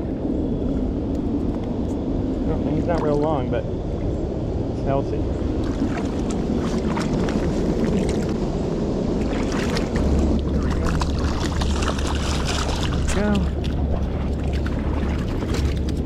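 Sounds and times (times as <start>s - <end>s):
deep low rumble: 0.0s - 16.0s
small splashes and clicks: 5.6s - 8.4s, 9.2s - 16.0s.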